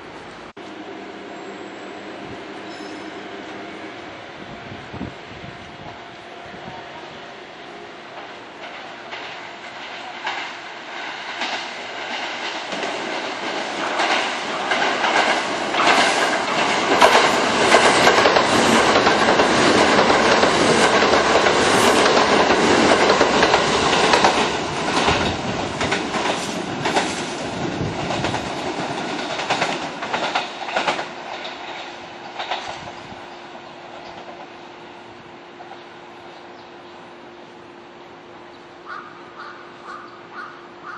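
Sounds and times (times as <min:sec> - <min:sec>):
train passing at speed: 0:00.0 - 0:40.9
wheels clattering over rail joints: 0:08.6 - 0:32.9.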